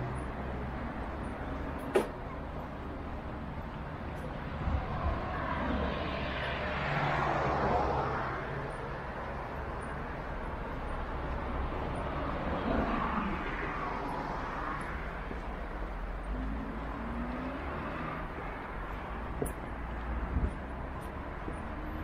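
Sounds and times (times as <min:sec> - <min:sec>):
vehicle passing: 0:16.1 - 0:19.3.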